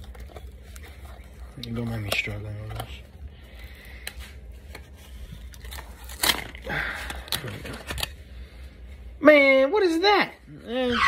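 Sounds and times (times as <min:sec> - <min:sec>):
packaging crinkling and tearing: 0:00.0 - 0:08.4.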